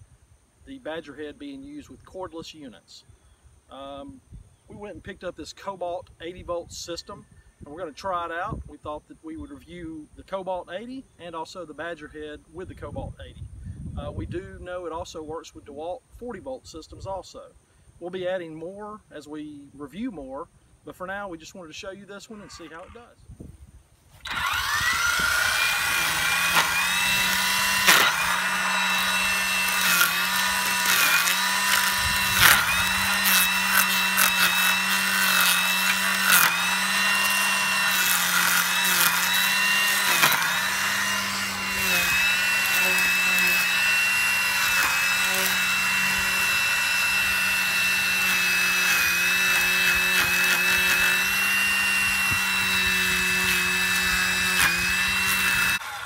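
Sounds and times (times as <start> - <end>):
string trimmer motor whining: 22.2 - 23.2, 24.1 - 56.0
blades cracking on brush: 24.2 - 52.6.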